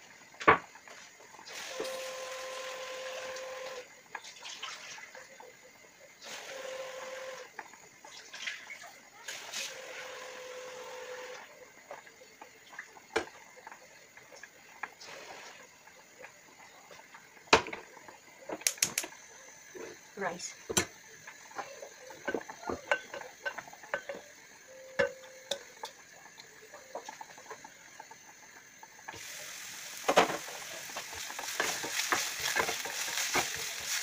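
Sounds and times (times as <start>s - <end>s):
steam hissing from covered pan: 0.0s - 4.0s, 6.0s - 8.0s, 9.1s - 34.0s
faint steam whistle: 1.5s - 3.9s, 6.2s - 7.5s, 9.5s - 11.5s.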